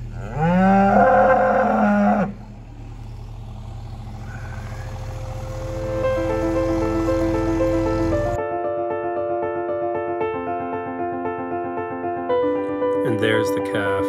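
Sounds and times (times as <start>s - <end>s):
cow mooing: 0.0s - 2.6s, 4.0s - 8.4s
low steady rumble: 0.0s - 8.4s
soft piano music: 4.5s - 14.0s.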